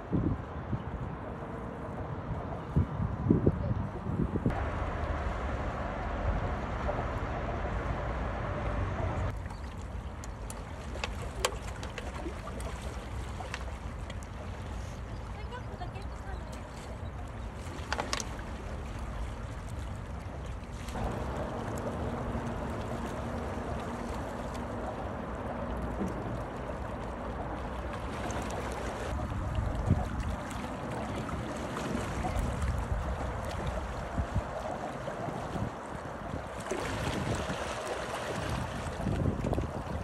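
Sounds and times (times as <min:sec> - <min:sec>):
wind buffeting microphone: 0:00.0 - 0:10.1, 0:20.9 - 0:40.0
water lapping against rocks: 0:09.3 - 0:40.0.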